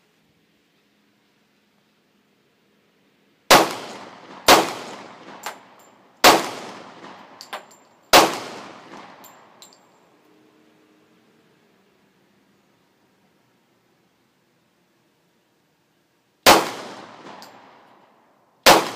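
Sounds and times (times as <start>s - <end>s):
handgun shots with echo: 18.7s - 18.9s.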